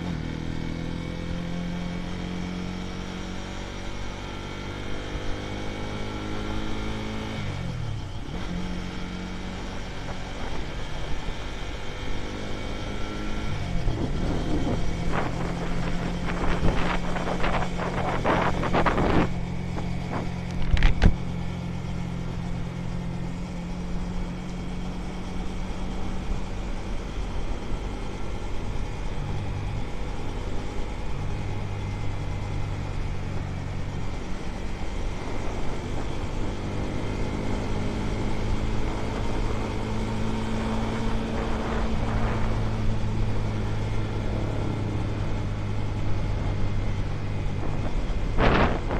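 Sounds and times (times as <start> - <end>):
motorcycle engine running: 0.0 - 48.9
wind buffeting microphone: 13.6 - 21.2, 40.5 - 46.0, 46.6 - 48.9.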